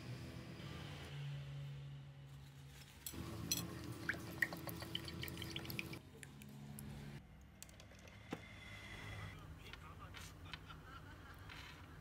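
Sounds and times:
liquid pouring into glass: 0:04.0 - 0:06.0.

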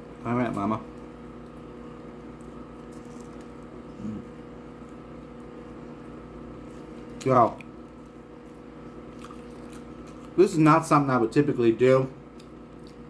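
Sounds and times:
steady low hum: 0:00.0 - 0:13.0
person humming mm: 0:03.9 - 0:04.4
chewing mouth sounds: 0:08.8 - 0:10.4, 0:12.3 - 0:13.0.

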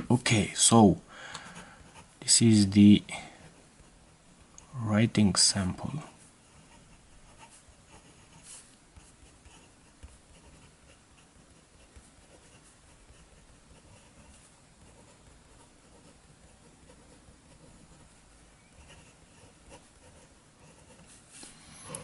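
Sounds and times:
fountain pen scratching paper: 0:06.4 - 0:18.1, 0:18.7 - 0:21.2.

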